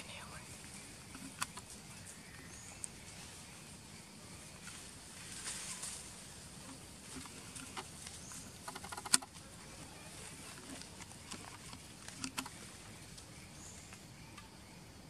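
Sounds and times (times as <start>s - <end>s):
faint steady hiss: 0.0s - 15.0s
dry leaves crackling underfoot: 4.5s - 14.0s.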